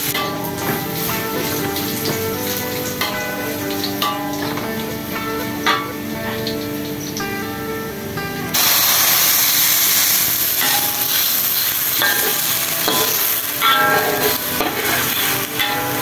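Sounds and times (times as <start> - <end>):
garlic sizzling in oil: 0.0 - 16.0
metal spatula scraping wok: 8.6 - 16.0.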